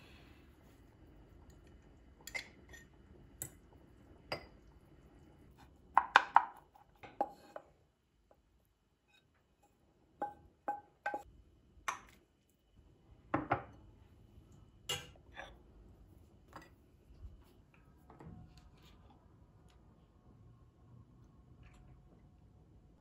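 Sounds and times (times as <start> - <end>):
wooden spoon knocking on pan: 10.2 - 11.2
dishes clinking on stone countertop: 10.2 - 11.3, 13.3 - 13.8, 14.9 - 15.6.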